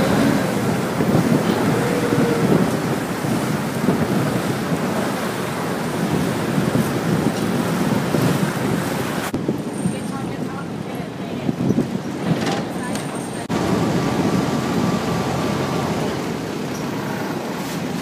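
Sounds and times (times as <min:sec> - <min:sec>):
boat engine and churning wake: 0:00.0 - 0:18.0
wind buffeting microphone: 0:00.0 - 0:18.0.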